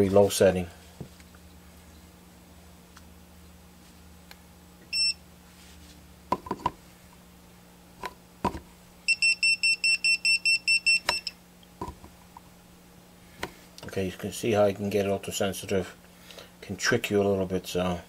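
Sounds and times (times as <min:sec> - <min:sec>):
voltage tester beeping: 0:04.8 - 0:05.2, 0:09.1 - 0:11.4.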